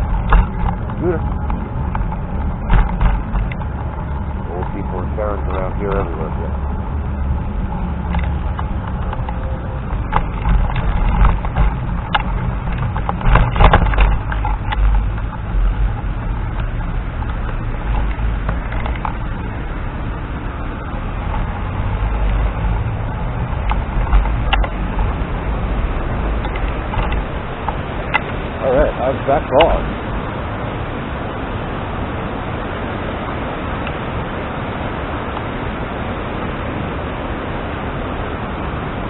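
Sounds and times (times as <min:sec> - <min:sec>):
scooter clattering over bumps: 0:00.0 - 0:19.5, 0:21.2 - 0:30.0
scooter wheels rumbling on path: 0:00.0 - 0:37.3
wind on microphone: 0:00.0 - 0:39.0.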